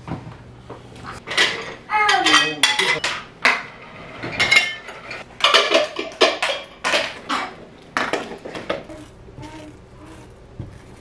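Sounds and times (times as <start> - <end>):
dishes clinking and clattering: 1.2 - 8.9.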